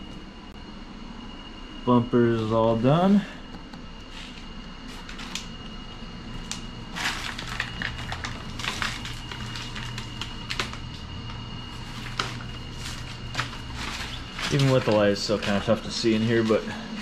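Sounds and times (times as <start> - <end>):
faint high whine: 0.0 - 17.0
steady low hum: 0.0 - 17.0
sheet material crinkling: 6.9 - 11.1, 11.7 - 15.8.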